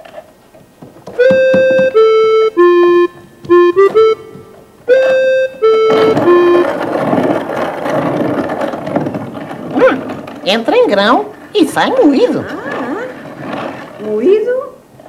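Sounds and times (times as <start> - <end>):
keyboard tune: 1.0 - 7.4.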